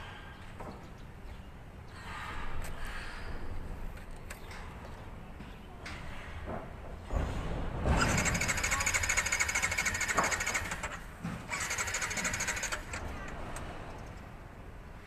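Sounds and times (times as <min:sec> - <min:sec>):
motorcycle electric starter cranking: 0:08.0 - 0:14.2.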